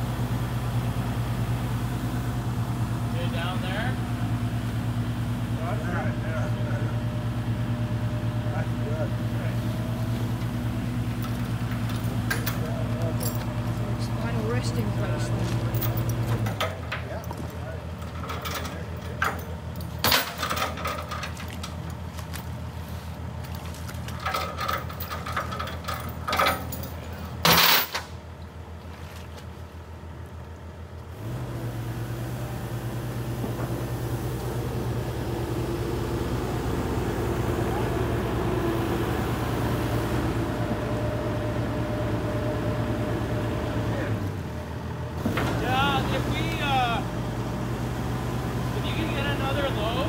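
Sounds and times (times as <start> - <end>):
excavator diesel engine idling: 0.0 - 27.4, 28.1 - 50.0
metallic clanks and knocks: 15.7 - 21.8, 24.2 - 28.1.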